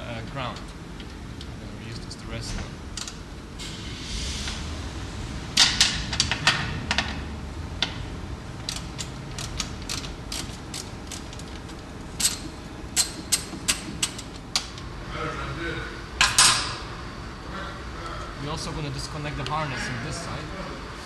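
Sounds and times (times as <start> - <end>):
sharp mechanical clicks and knocks: 8.6 - 14.8.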